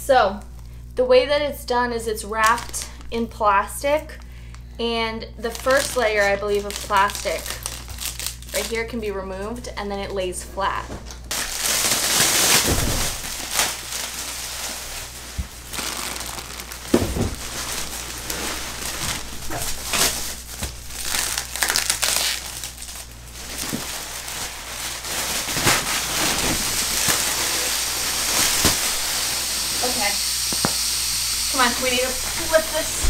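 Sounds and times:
plastic wrapping crinkling: 2.3 - 4.7, 5.4 - 9.0, 10.8 - 30.1.

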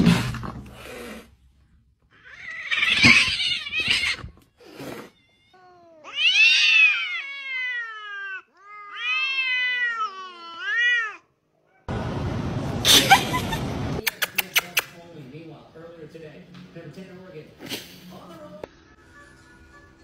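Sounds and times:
cats yowling: 2.1 - 11.9.

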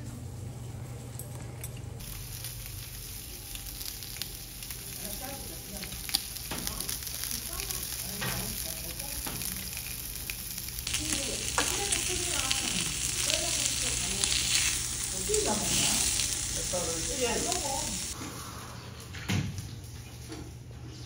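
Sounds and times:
food sizzling on a grill: 2.0 - 18.2.

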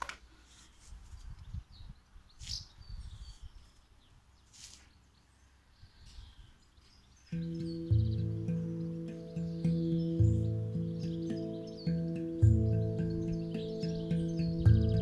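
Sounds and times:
birds chirping: 1.2 - 15.0
handpan notes ringing: 7.3 - 15.0.

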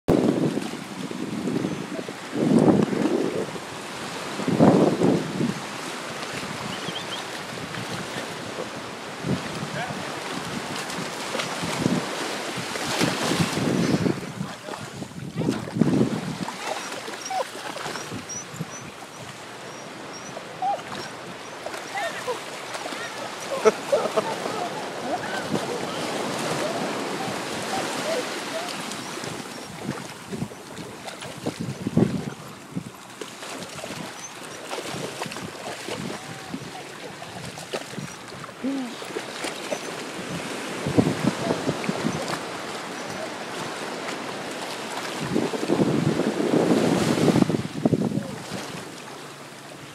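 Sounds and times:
wind gust on microphone: 0.1 - 32.9, 34.9 - 39.0, 39.8 - 44.5, 45.1 - 48.9
surf washing: 0.1 - 49.9
dog whining: 16.8 - 18.9, 19.7 - 22.3, 23.9 - 29.7.

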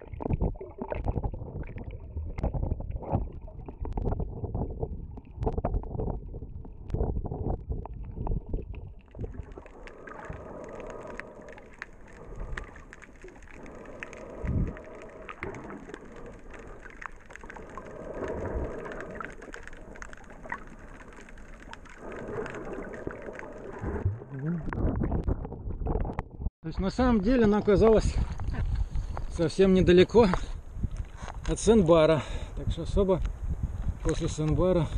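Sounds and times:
muffled underwater water wash: 0.0 - 26.5
low water swells: 6.2 - 25.8
small crackling clicks: 7.8 - 23.9.

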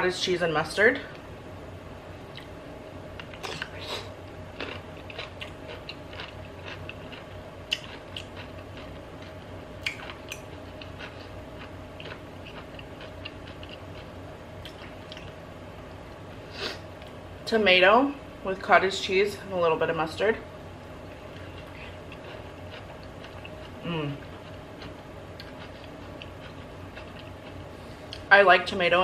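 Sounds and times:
pickle crunching while chewed: 4.6 - 15.4, 21.2 - 28.2.

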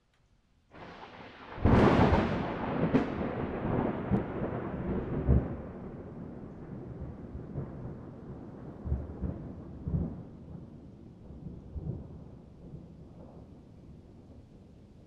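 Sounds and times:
thunder crack: 0.8 - 10.6
rolling thunder rumble: 0.8 - 14.5.

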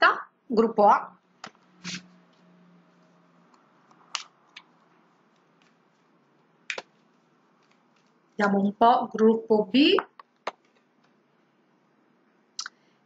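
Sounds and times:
cards rustling and clicking: 3.5 - 8.4, 10.2 - 11.2.

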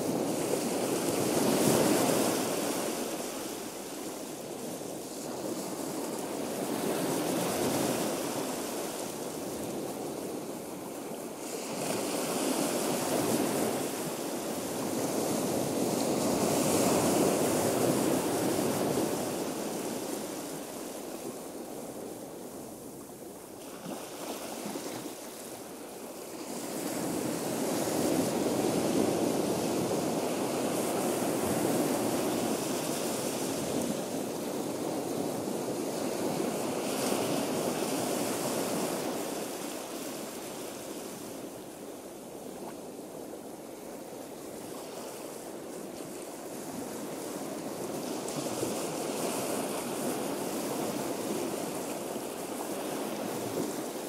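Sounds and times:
ocean surf washing in and out: 0.0 - 54.0.

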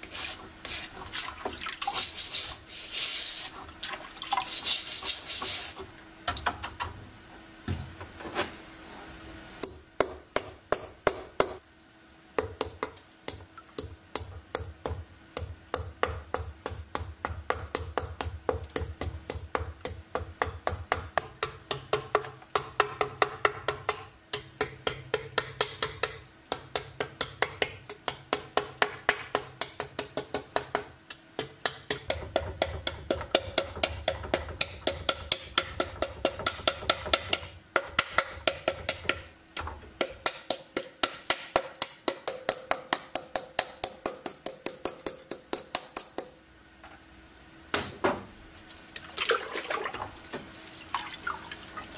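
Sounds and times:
wet sponge scrubbing metal: 0.0 - 5.9.

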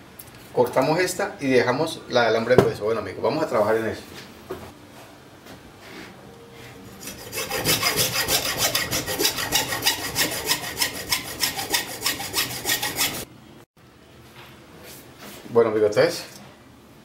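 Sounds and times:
hacksaw sawing through wire: 7.0 - 13.3.

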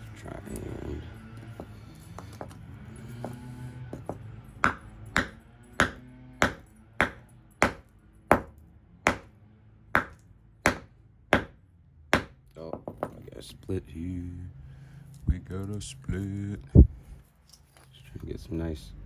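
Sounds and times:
hammer striking rock: 4.0 - 8.5, 9.1 - 9.3, 10.0 - 13.2.

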